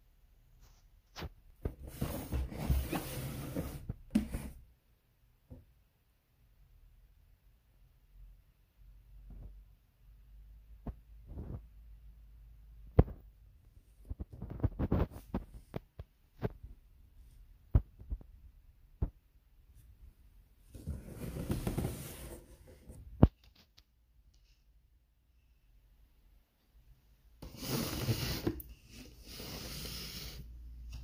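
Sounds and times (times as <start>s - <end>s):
rubbing scrape: 1.8s - 4.6s, 20.8s - 23.0s, 27.4s - 30.4s.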